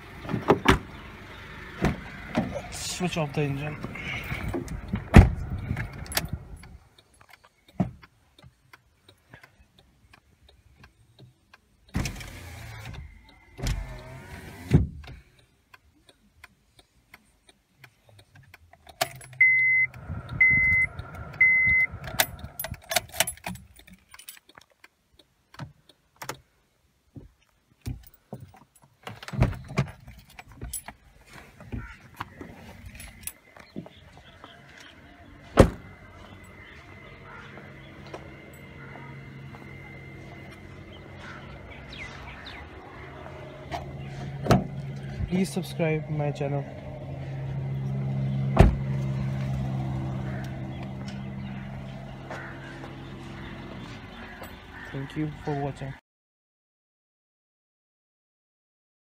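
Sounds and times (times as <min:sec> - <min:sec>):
dashboard chime beeps: 0:19.4 - 0:21.9
knocks and shuffling: 0:27.1 - 0:54.6.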